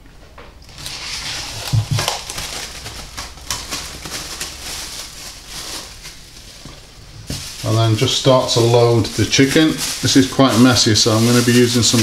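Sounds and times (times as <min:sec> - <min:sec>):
cling film crinkling: 0:00.6 - 0:12.0.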